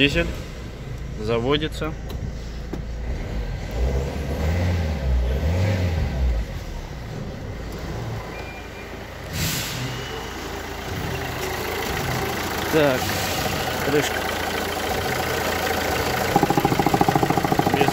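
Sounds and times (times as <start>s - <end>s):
diesel engine idling: 8.8s - 17.9s.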